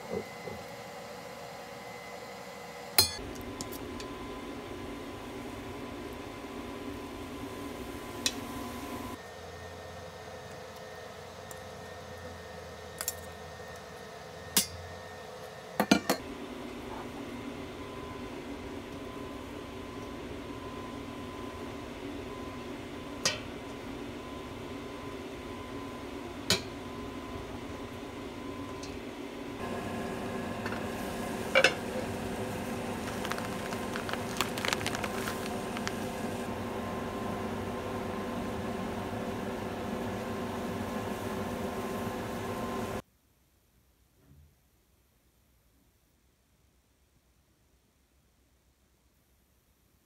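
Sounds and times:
pot of water boiling: 0.0s - 43.0s
steady hum: 22.7s - 43.0s
package handled with small clicks: 33.0s - 36.1s.

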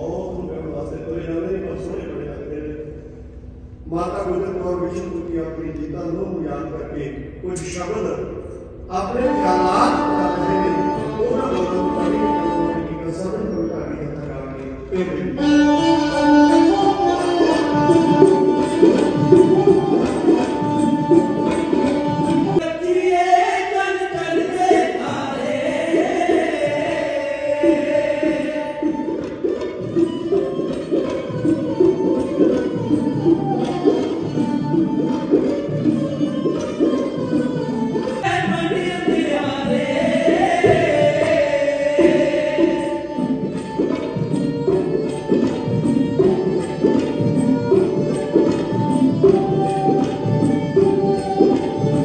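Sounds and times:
sarangi: 0.0s - 52.0s
string accompaniment: 0.0s - 52.0s
tabla: 0.0s - 52.0s
person singing: 15.3s - 30.5s, 36.9s - 52.0s
hand drum: 15.4s - 22.6s, 24.4s - 52.0s
men singing devotional song: 22.6s - 29.4s, 38.2s - 43.9s.

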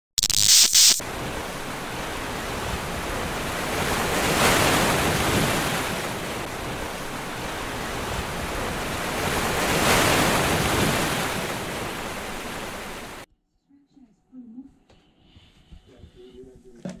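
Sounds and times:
loud hiss: 0.2s - 1.0s
waves washing in: 1.0s - 13.3s.

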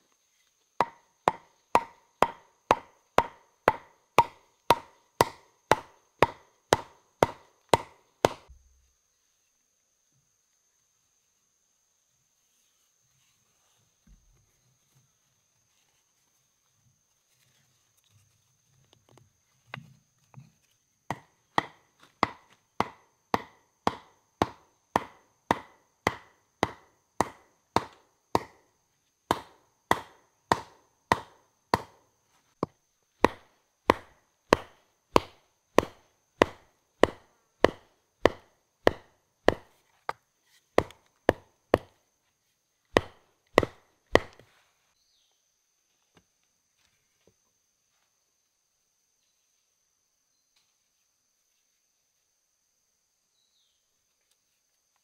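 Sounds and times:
tool chopping wood: 0.8s - 8.6s, 21.1s - 28.7s, 29.3s - 40.2s, 40.8s - 42.0s, 42.9s - 44.5s.

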